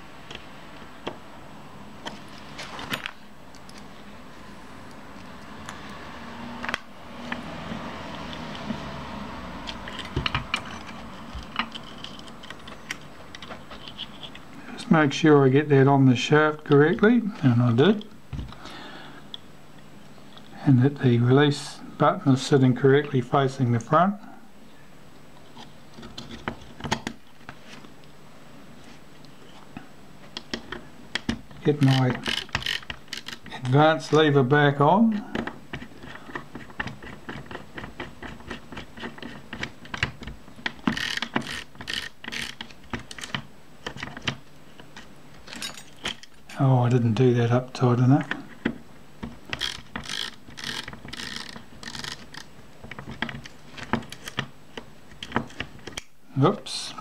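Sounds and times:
screwdriver scraping: 0:09.7 - 0:14.4, 0:31.8 - 0:33.5, 0:35.7 - 0:40.0, 0:40.6 - 0:44.3, 0:49.5 - 0:54.4
small metallic clicks: 0:49.5 - 0:52.5.

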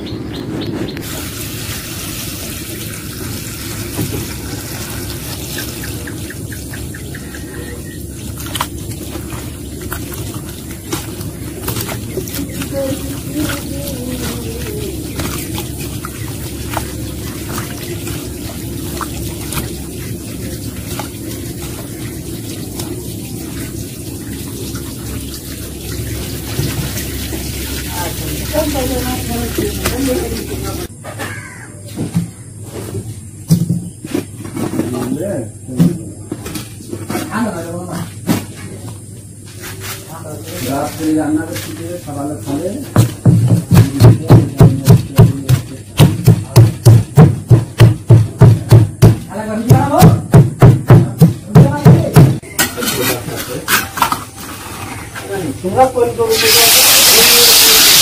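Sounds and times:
water pouring into a metal pot: 0:01.0 - 0:30.9, 0:52.8 - 0:58.0.

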